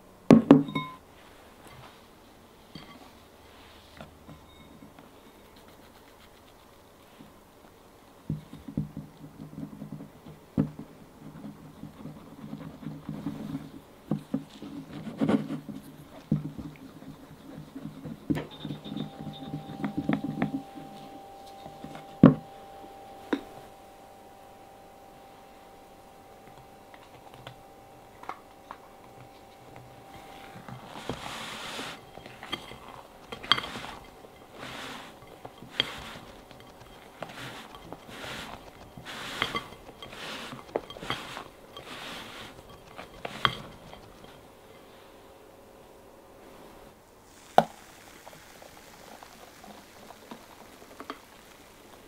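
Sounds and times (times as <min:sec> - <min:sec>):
spatula scraping glass bowl: 0:14.5 - 0:23.8, 0:26.2 - 0:44.5
batter swishing: 0:26.2 - 0:44.5.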